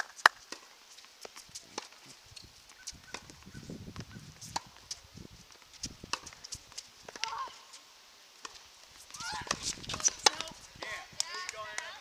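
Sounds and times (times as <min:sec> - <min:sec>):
tennis balls bouncing and struck: 0:02.8 - 0:05.0, 0:06.1 - 0:07.5, 0:08.4 - 0:12.0.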